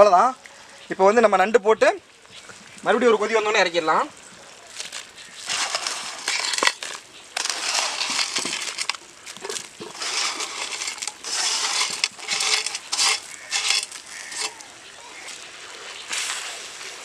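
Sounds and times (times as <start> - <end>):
crab shells scraping on metal: 4.8 - 15.3.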